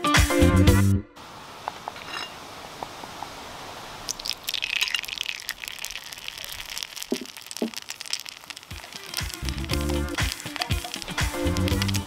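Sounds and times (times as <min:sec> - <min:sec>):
batter sizzling in hot oil: 0:04.0 - 0:12.0.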